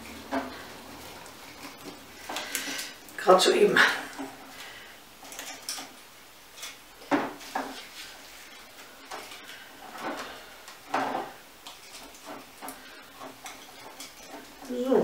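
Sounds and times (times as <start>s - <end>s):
twigs rustling in a glass bottle: 6.6s - 15.0s.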